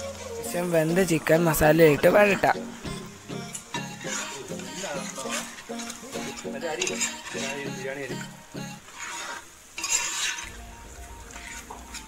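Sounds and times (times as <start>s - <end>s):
chicken sizzling: 0.0s - 12.0s
metal ladle scraping pot: 3.9s - 7.8s, 8.9s - 10.6s.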